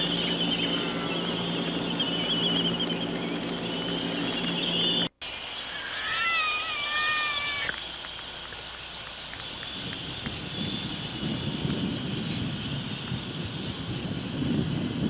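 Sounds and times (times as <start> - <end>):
albatross call: 5.7 - 7.8.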